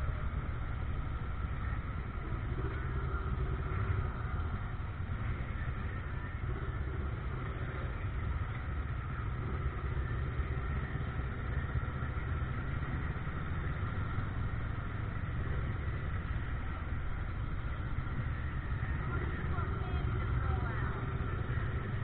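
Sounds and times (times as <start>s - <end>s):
vehicle engine rumbling: 0.0s - 22.0s.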